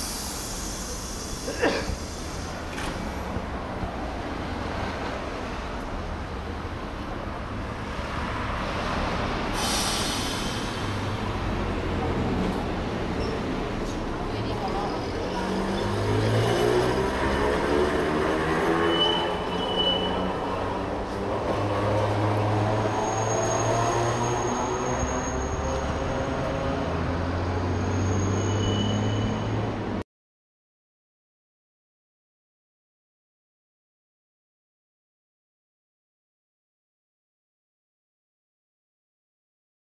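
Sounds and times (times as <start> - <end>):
high-pitched tram hiss: 0.0 - 3.2, 9.5 - 11.2
idling vehicles and trams droning: 0.0 - 30.0
street traffic rumble: 0.0 - 30.0.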